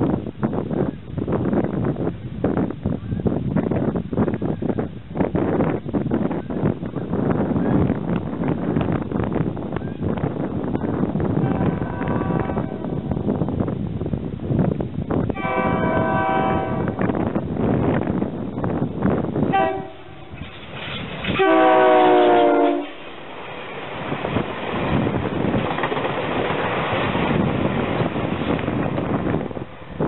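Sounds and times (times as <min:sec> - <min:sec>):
passing train rumble: 0:00.0 - 0:30.0
train horn blasts: 0:11.4 - 0:13.1, 0:15.3 - 0:17.2, 0:19.5 - 0:20.4, 0:21.3 - 0:23.0.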